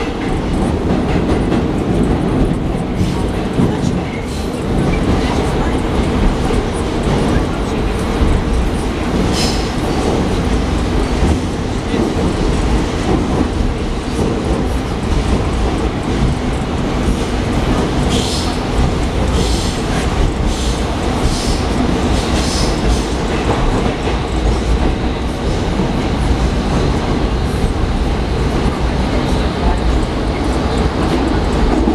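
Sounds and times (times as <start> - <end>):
train wheels rumbling on rails: 0.0 - 31.9.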